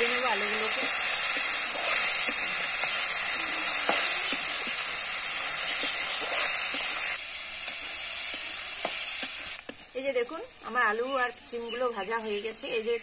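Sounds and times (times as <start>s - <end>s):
vegetables sizzling in oil: 0.0s - 13.0s
metal spatula scraping a pan: 0.8s - 9.3s.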